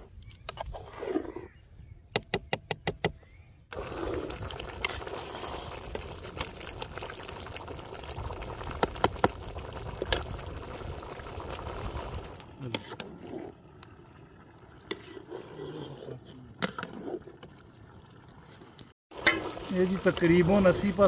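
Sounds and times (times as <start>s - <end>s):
rice boiling in a pot: 3.7s - 16.4s, 19.1s - 21.0s.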